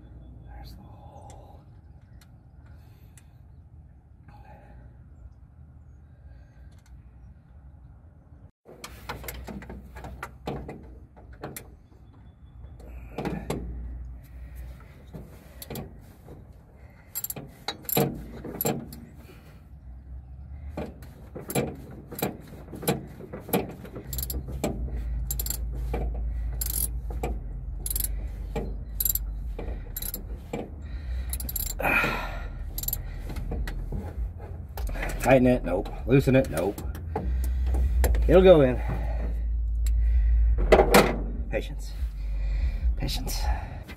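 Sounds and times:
metallic clicks and clinks of tools: 0:17.1 - 0:19.0, 0:24.0 - 0:24.5, 0:25.2 - 0:25.7, 0:26.6 - 0:27.0, 0:27.8 - 0:28.2, 0:29.0 - 0:30.3, 0:31.2 - 0:31.8, 0:32.7 - 0:33.0
low rumble: 0:24.2 - 0:43.9.

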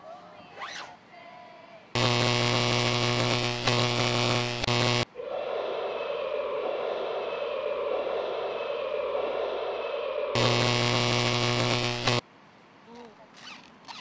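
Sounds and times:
steady hiss and hum: 0:01.1 - 0:13.9
electronic buzzing tone: 0:02.0 - 0:05.1, 0:10.4 - 0:12.2.

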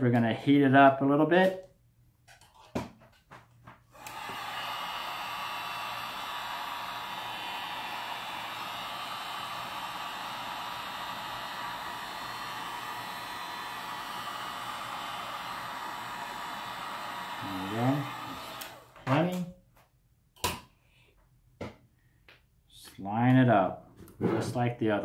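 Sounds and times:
heat gun blowing: 0:03.9 - 0:19.4
heat gun switch: 0:04.0 - 0:19.4.

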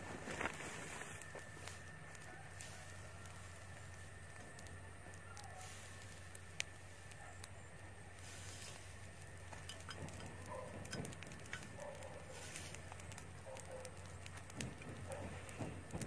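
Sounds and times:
straw fire crackling: 0:00.0 - 0:16.0.

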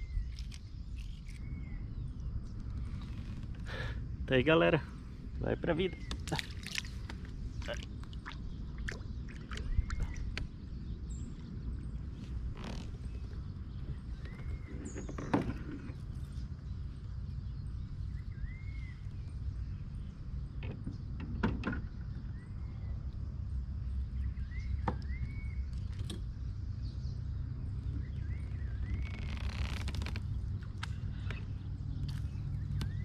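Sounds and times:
steady low rumble: 0:00.0 - 0:21.2.

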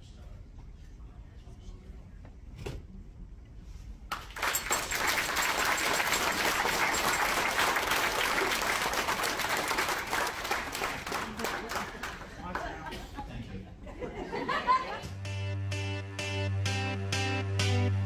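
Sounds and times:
crowd applauding: 0:04.1 - 0:12.8.

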